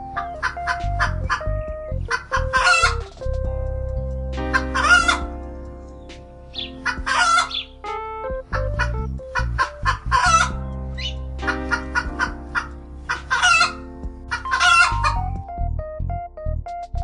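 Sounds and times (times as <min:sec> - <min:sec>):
background music with held notes: 0:00.0 - 0:17.0
chickens calling: 0:02.1 - 0:03.0, 0:04.5 - 0:05.2, 0:06.6 - 0:07.7, 0:08.5 - 0:15.2.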